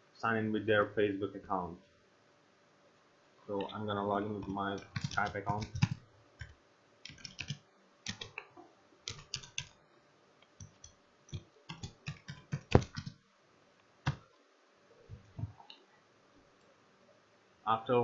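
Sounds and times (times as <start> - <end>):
typing on computer keyboard: 4.4 - 8.4, 9.1 - 9.8, 10.6 - 13.2.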